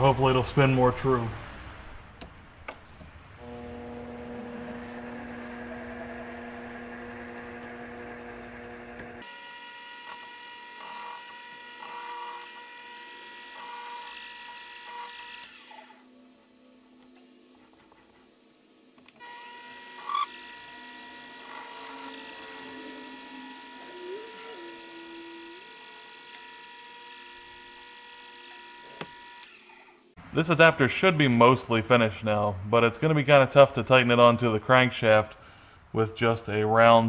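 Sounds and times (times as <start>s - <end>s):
lathe motor whine: 3.4s - 16.0s, 19.2s - 30.0s.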